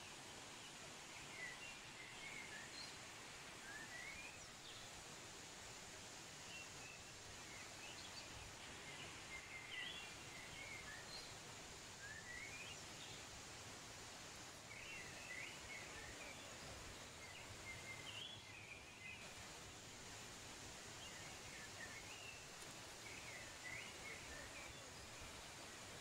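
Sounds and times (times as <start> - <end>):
faint waterfall rush: 0.0 - 26.0
small birds chirping: 6.6 - 13.4, 14.2 - 19.5, 20.7 - 26.0.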